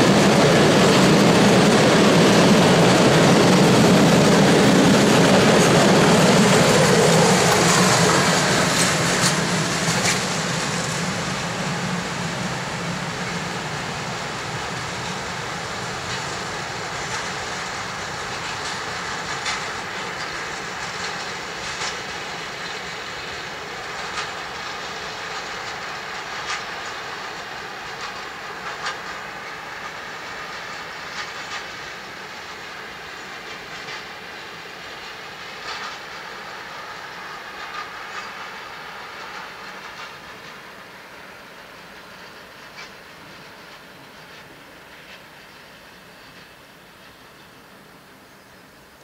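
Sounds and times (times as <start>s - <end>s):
wheels clicking over rail joints: 0.0s - 47.6s
freight train rolling past: 0.0s - 49.0s.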